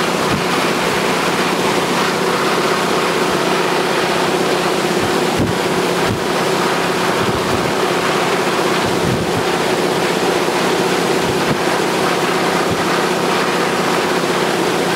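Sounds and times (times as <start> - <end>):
propeller aircraft engine droning: 0.0 - 14.9
wind rush on microphone: 4.9 - 9.6, 11.2 - 11.8.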